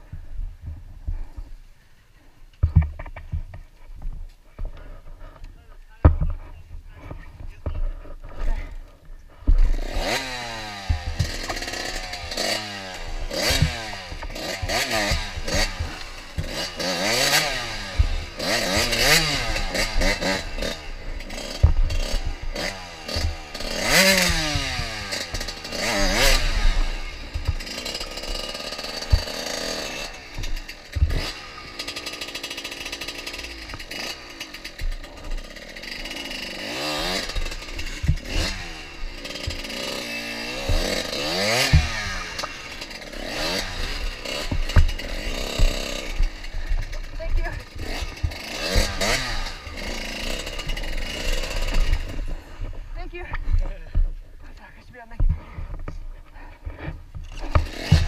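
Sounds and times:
bike knocking over rocks: 2.6 - 4.8, 10.9 - 39.7, 40.5 - 49.9, 50.5 - 58.0
dirt bike engine revving: 8.2 - 54.4, 55.2 - 58.0.

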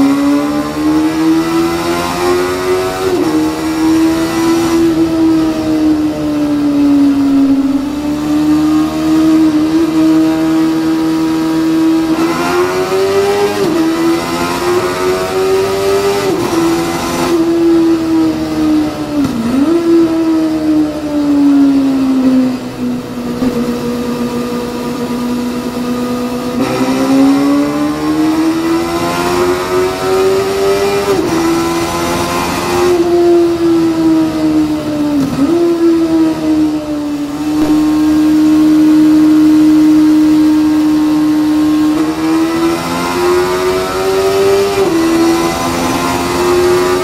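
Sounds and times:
motorcycle engine at high revs: 0.0 - 47.0
steady rush of noise: 22.4 - 25.9.

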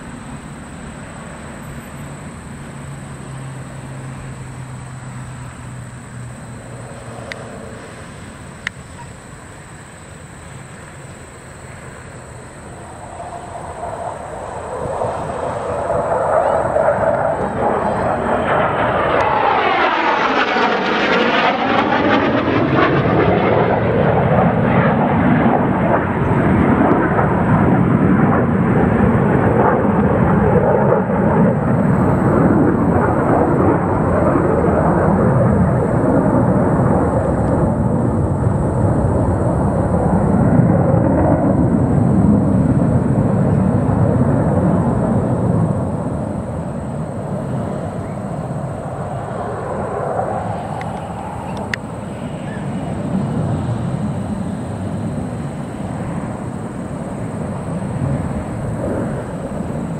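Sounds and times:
distant jet rumble: 0.0 - 59.9
jet roaring past: 0.0 - 59.9.

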